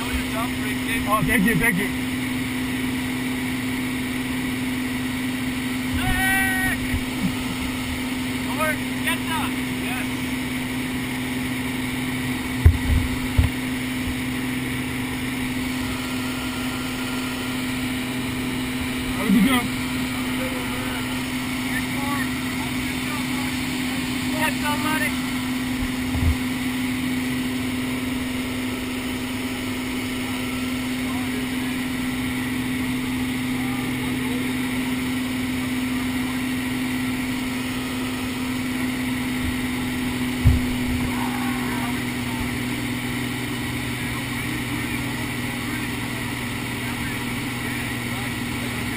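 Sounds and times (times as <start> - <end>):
aircraft engine droning: 0.0 - 48.9
low thumps: 12.6 - 14.2, 25.7 - 26.5, 40.4 - 41.1.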